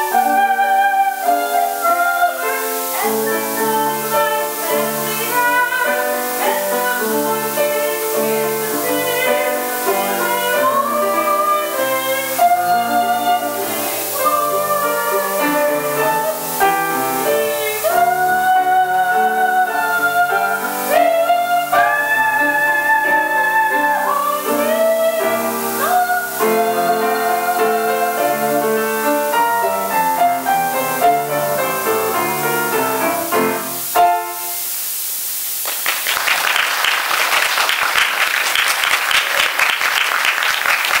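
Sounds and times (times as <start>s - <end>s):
woman singing: 0.0s - 33.8s
grand piano playing: 0.0s - 34.9s
audience applause: 35.6s - 41.0s.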